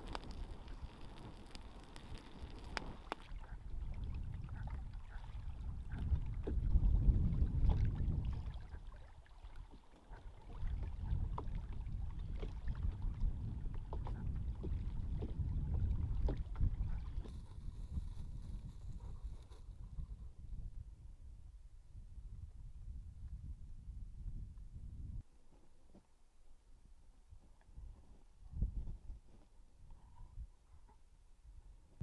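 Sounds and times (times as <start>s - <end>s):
wind buffeting microphone: 2.0s - 9.0s, 10.2s - 25.2s, 27.8s - 29.3s
water lapping against canoe: 2.0s - 20.0s.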